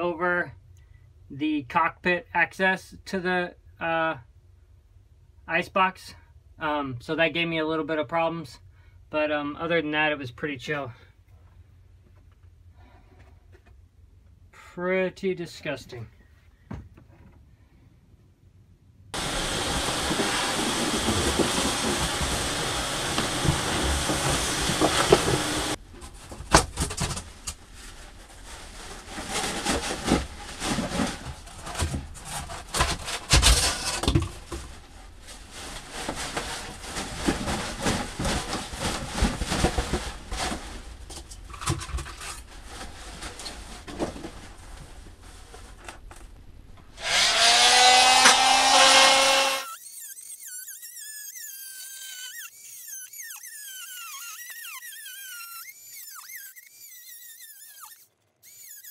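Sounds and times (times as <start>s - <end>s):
shop vacuum running: 19.2s - 25.8s, 47.0s - 49.7s
plastic bag rustling: 19.2s - 46.4s.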